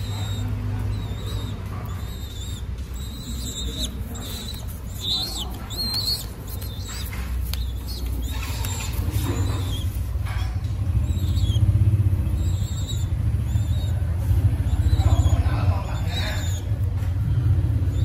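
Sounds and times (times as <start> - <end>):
pigeon squab squeaking: 0.0 - 18.0.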